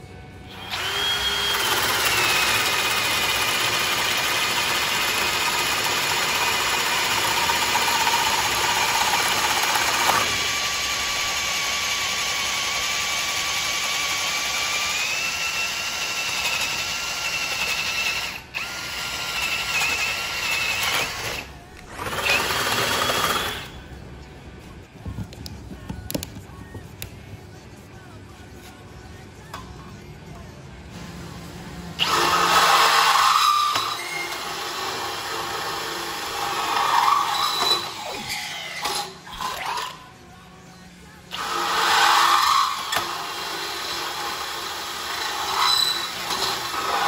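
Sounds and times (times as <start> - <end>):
drill boring through wood: 0.5 - 23.7, 32.0 - 40.0, 41.3 - 47.0.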